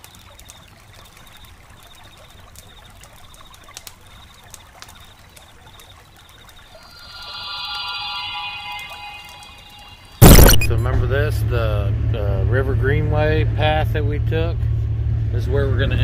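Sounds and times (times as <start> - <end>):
thin high chirp: 4.1 - 10.8
music: 7.0 - 10.8.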